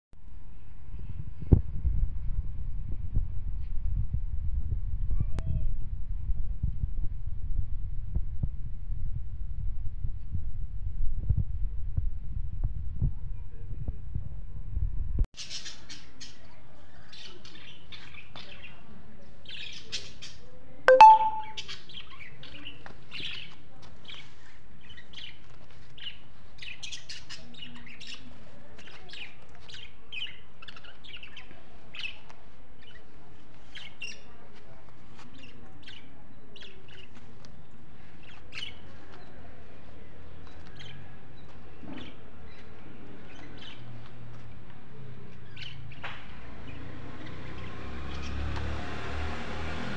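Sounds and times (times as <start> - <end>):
small birds chirping: 15.4 - 48.7.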